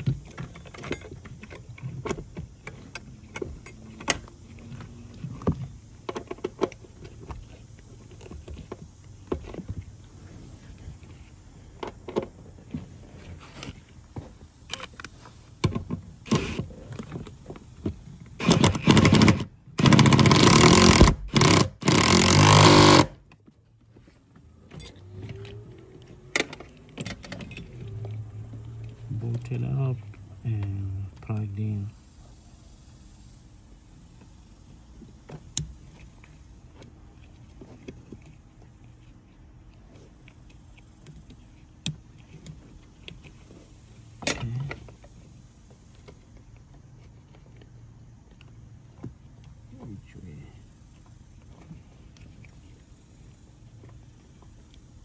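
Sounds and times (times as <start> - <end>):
power tool bursts: 18.4 - 23.2.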